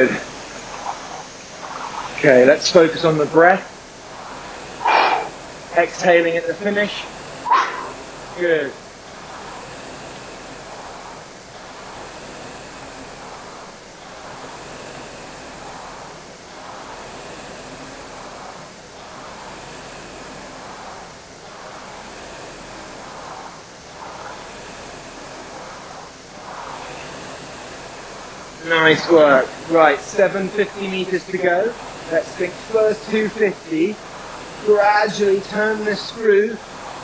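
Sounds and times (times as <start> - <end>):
rowing machine flywheel whooshing: 0.0 - 37.0.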